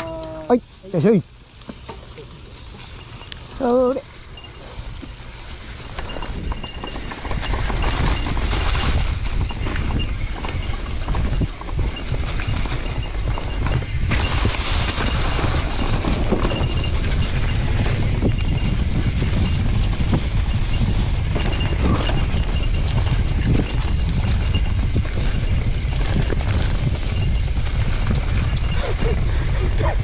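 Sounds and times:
bike tyre and trail noise: 0:00.0 - 0:30.0
wind buffeting on microphone: 0:03.0 - 0:30.0
bike knocking over bumps: 0:06.0 - 0:28.8.

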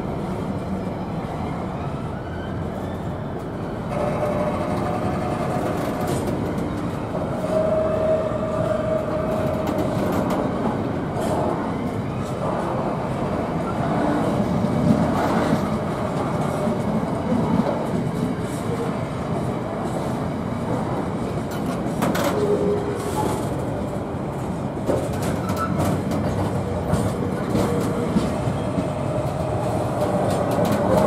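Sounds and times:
freight train wheels clattering: 0:03.9 - 0:07.9, 0:20.7 - 0:31.0.

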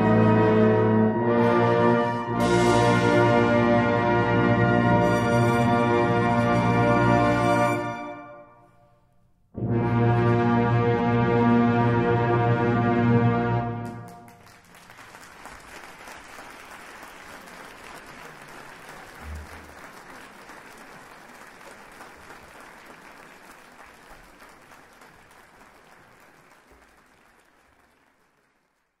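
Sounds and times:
audience applauding: 0:13.8 - 0:29.0.

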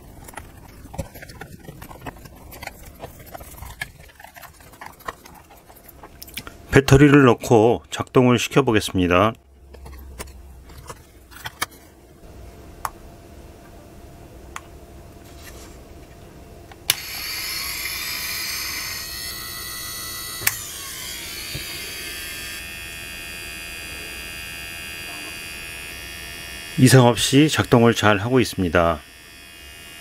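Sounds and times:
motor high whine: 0:16.8 - 0:30.0.

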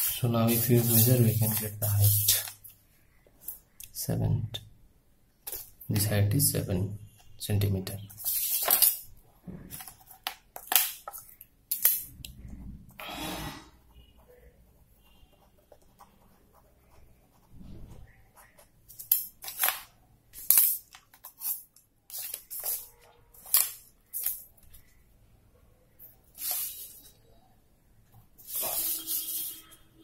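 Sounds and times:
plastic set squares scraping paper: 0:00.0 - 0:02.6, 0:28.4 - 0:29.8.

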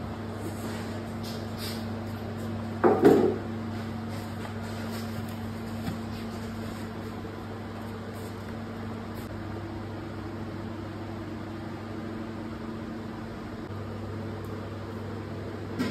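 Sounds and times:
higher machine hum: 0:00.0 - 0:15.9.

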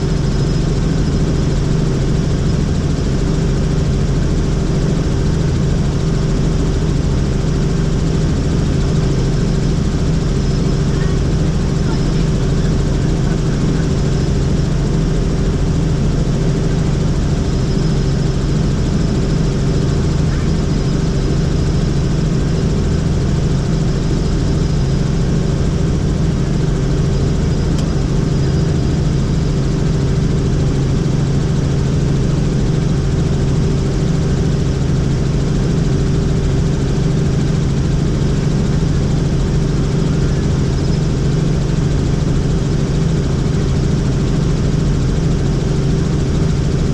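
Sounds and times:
helicopter engine and rotors: 0:00.0 - 0:46.9.

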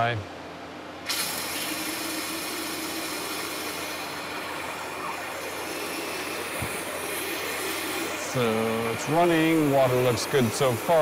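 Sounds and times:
pump running: 0:01.0 - 0:11.0
high-pressure water stream hissing: 0:01.1 - 0:11.0.

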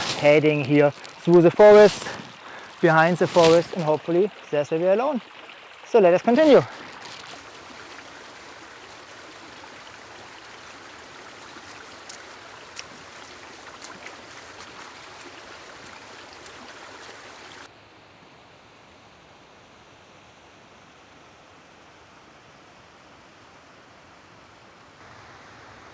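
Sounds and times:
dull hiss: 0:00.0 - 0:13.3, 0:24.4 - 0:25.9
flowing water rushing: 0:00.0 - 0:17.8, 0:24.4 - 0:25.9.

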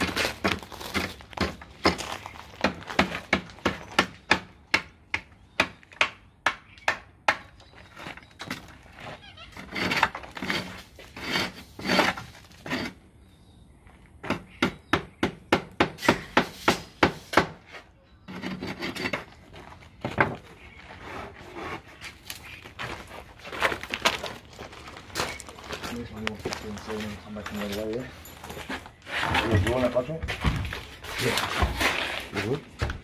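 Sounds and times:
hand rasp scraping concrete: 0:09.5 - 0:13.0, 0:18.2 - 0:19.4.

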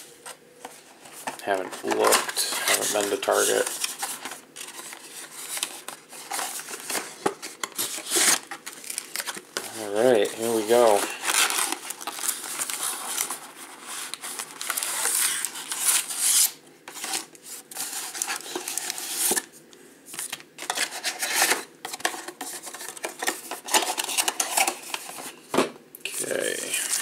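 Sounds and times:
card packs sliding: 0:01.0 - 0:19.4.

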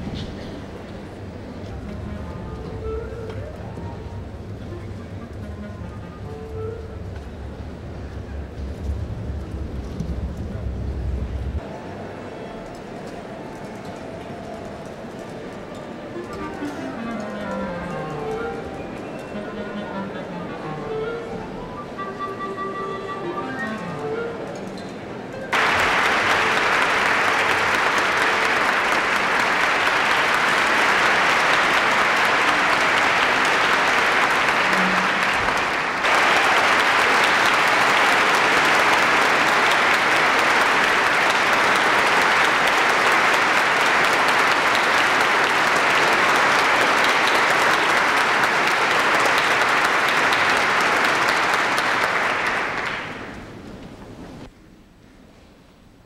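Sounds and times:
music: 0:01.2 - 0:50.3
audience applauding: 0:25.5 - 0:53.6.

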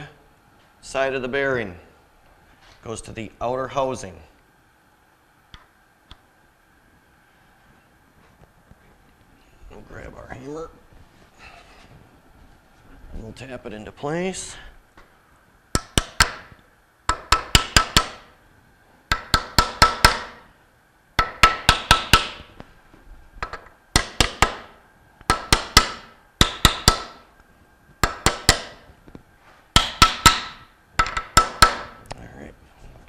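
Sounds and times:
hammer tapping metal pipe: 0:15.8 - 0:18.3, 0:19.1 - 0:20.5, 0:21.2 - 0:22.5, 0:23.4 - 0:27.2, 0:28.0 - 0:28.9, 0:29.8 - 0:32.0.

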